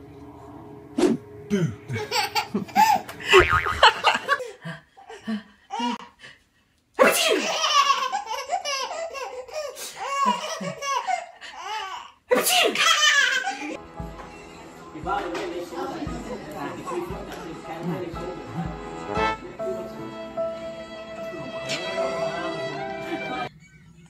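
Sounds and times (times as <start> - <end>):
baby laughing hard: 1.9 - 4.5, 7.0 - 13.8.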